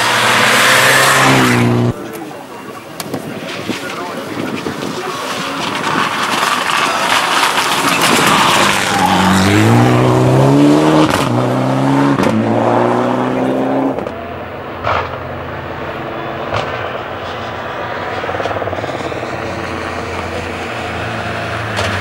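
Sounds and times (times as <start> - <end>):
distant car: 0.0 - 22.0
rally car engine at full throttle: 0.0 - 22.0
sharp pop: 14.8 - 15.2, 16.5 - 17.0.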